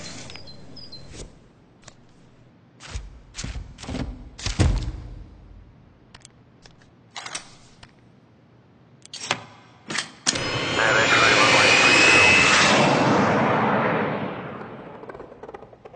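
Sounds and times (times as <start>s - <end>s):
jet engine roar with whine: 10.3s - 15.9s.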